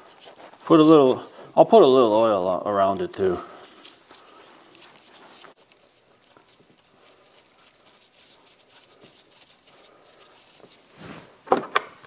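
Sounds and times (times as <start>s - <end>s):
fingers scratching and ticking: 3.2s - 10.8s.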